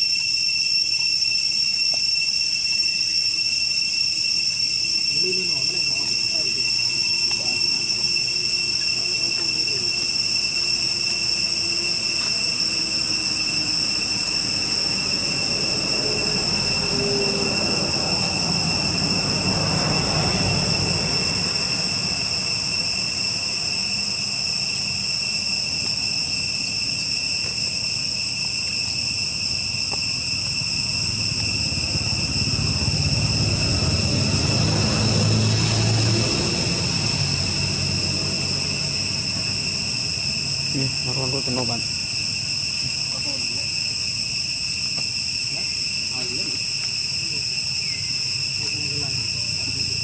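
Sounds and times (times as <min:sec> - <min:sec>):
high insect chorus: 0:00.0 - 0:50.0
low rumble: 0:30.6 - 0:40.8.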